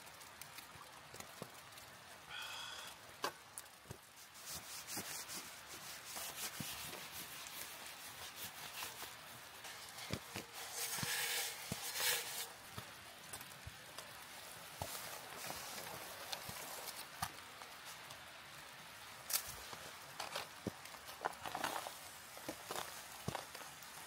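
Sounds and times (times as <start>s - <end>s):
tent fabric rustling: 4.0s - 18.1s, 19.2s - 24.0s.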